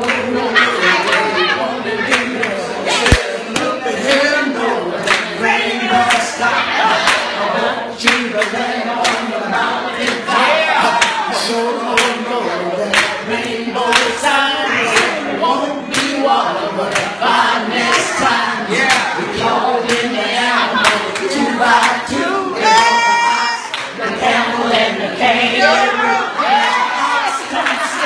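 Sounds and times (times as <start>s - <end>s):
hands clapping: 2.1s - 4.2s, 5.0s - 5.4s, 6.0s - 6.3s, 7.0s - 7.4s, 8.0s - 9.3s, 10.9s - 11.2s, 11.9s - 12.2s, 12.9s - 13.2s, 13.9s - 14.2s, 15.9s - 16.2s, 16.9s - 17.2s, 18.8s - 20.1s, 20.8s - 22.0s, 23.7s - 24.0s.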